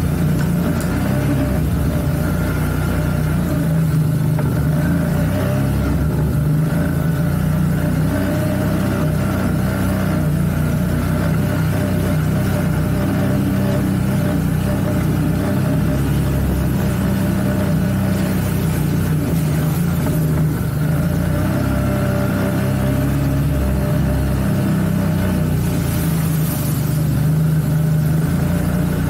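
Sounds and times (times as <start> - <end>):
atv engine running: 0.0 - 29.0.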